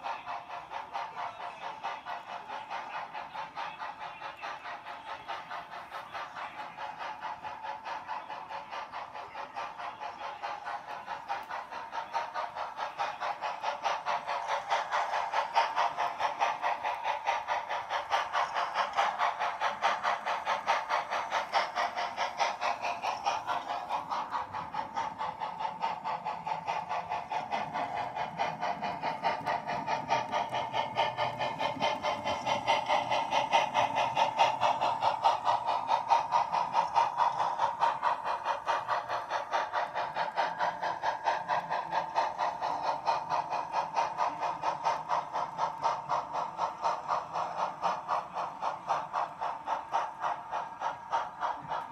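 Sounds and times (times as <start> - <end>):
model train running whine: 0.0 - 51.9
model train wheels clicking: 0.0 - 51.9.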